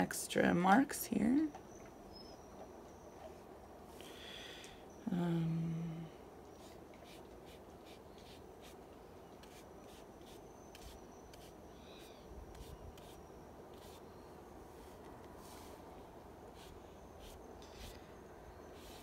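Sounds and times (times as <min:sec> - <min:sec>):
paintbrush strokes on paper: 0:06.6 - 0:08.8, 0:09.4 - 0:11.6, 0:12.5 - 0:14.0, 0:14.7 - 0:15.9, 0:16.5 - 0:18.0, 0:18.7 - 0:19.0.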